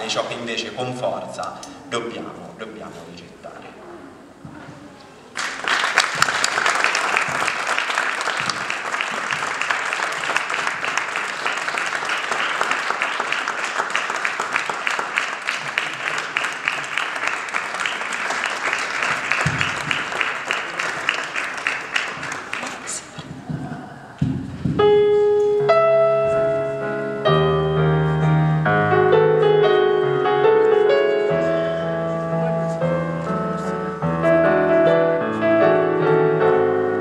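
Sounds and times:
audience applauding: 5.3 - 23.2.

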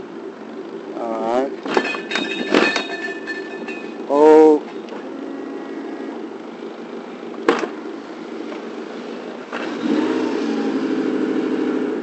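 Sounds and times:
outboard engine running: 3.9 - 11.8.

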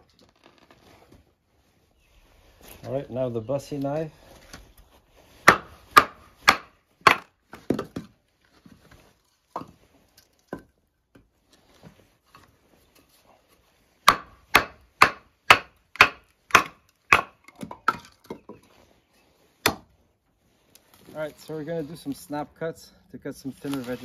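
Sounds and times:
log splitting: 3.7 - 10.7, 14.0 - 18.8, 19.6 - 19.9.

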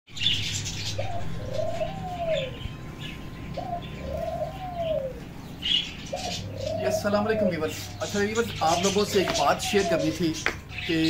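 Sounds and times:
small birds chirping: 0.1 - 11.0
dove cooing: 0.2 - 11.0.

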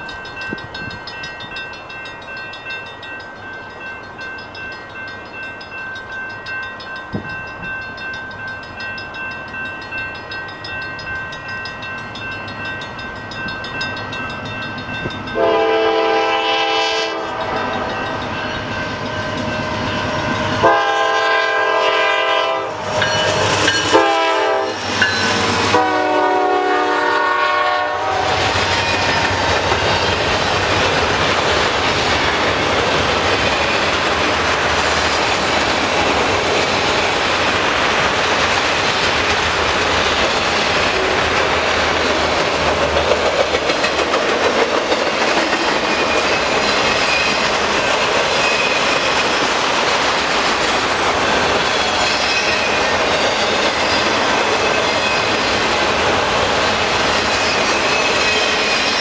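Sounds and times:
diesel locomotive engine: 0.0 - 59.0
train air horn blowing: 15.4 - 17.9, 20.6 - 22.9, 23.9 - 24.9, 25.6 - 28.6
train wheels rumbling and clattering: 21.9 - 59.0.

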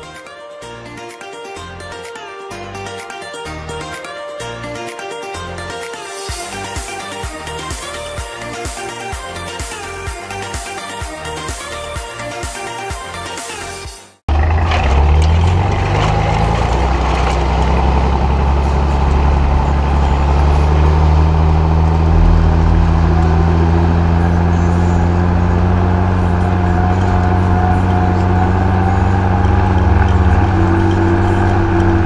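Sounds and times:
diesel tractor engine under load: 14.3 - 32.0.

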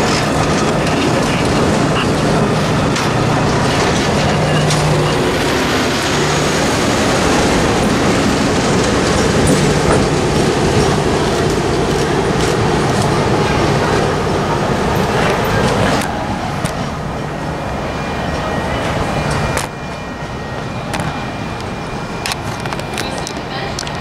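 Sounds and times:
wheels clicking over rail joints: 0.0 - 16.8
diesel locomotive engine: 0.0 - 24.0
train wheels rumbling on rails: 0.0 - 24.0.

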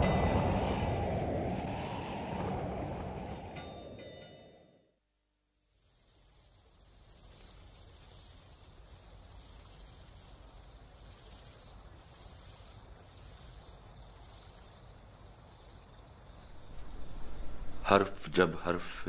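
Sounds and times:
crickets chirping: 5.5 - 19.0.

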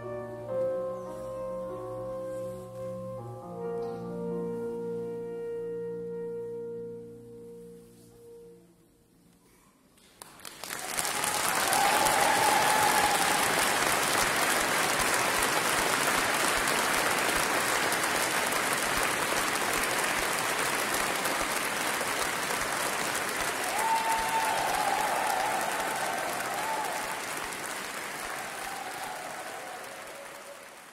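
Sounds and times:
audience applause: 10.0 - 30.9.

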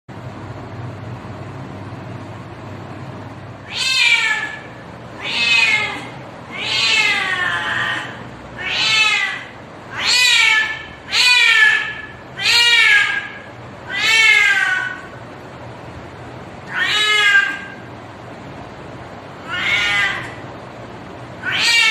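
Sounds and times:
low steady hum: 0.1 - 21.9
cat meowing: 3.6 - 15.1, 16.6 - 17.8, 19.4 - 20.4, 21.4 - 21.9.

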